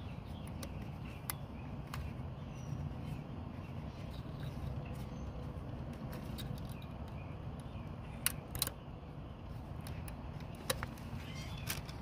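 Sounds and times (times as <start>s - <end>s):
sharp plastic snaps: 5.9s - 8.9s.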